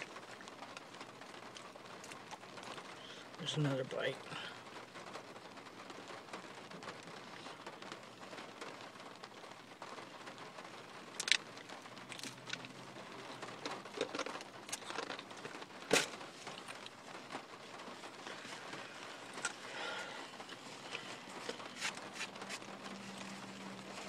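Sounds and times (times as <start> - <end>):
packaging crinkling: 20.6 - 24.0.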